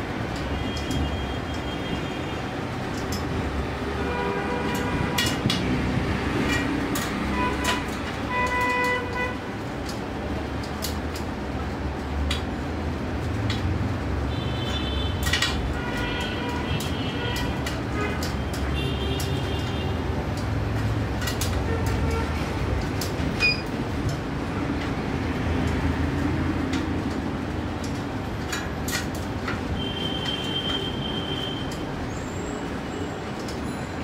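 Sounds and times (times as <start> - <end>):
traffic rumble: 0.0 - 34.0
vehicle horns honking: 29.8 - 31.8.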